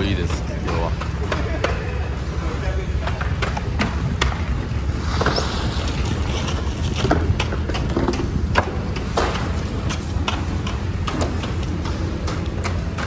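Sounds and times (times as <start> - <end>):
clacks and knocks of boxes: 7.0 - 13.0.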